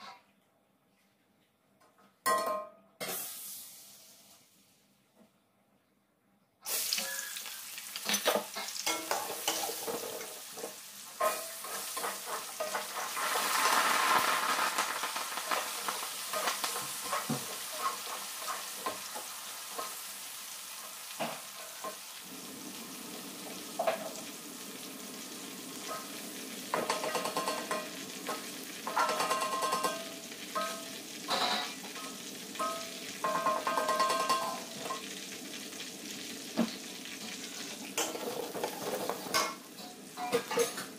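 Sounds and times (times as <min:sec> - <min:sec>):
shallots sizzling in hot oil: 0:03.0 - 0:04.8, 0:06.6 - 0:40.9
metal spatula scraping wok: 0:08.1 - 0:14.3, 0:30.6 - 0:34.6.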